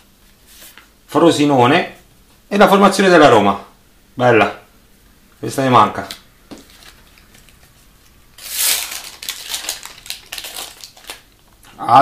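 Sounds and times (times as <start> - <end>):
foil wrapper crinkling: 6.6 - 7.7, 8.4 - 11.5.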